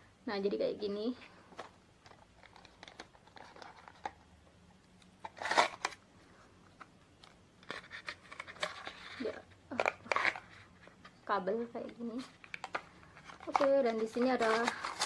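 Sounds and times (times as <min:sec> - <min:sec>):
packaging rustling: 0:01.5 - 0:04.2, 0:05.2 - 0:06.0, 0:06.8 - 0:11.2, 0:12.1 - 0:15.0
paper sleeve scraping off box: 0:05.2 - 0:06.0, 0:13.3 - 0:15.0.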